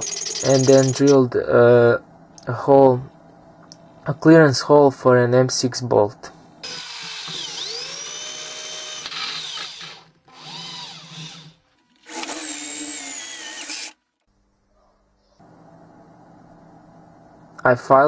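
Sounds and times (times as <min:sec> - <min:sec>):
electric drill boring metal: 0:06.6 - 0:14.0.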